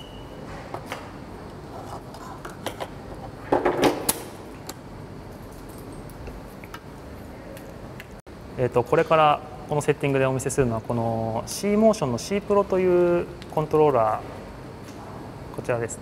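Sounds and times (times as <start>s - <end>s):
faint high beep: 0.0s - 0.4s.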